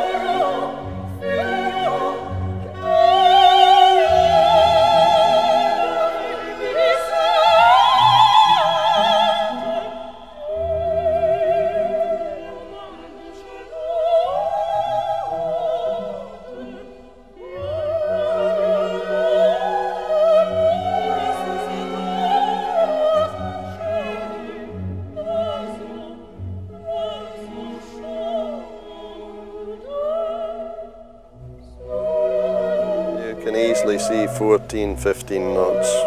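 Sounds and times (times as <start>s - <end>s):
orchestra playing: 31.4s - 36.0s
operatic solo voice: 33.2s - 36.0s.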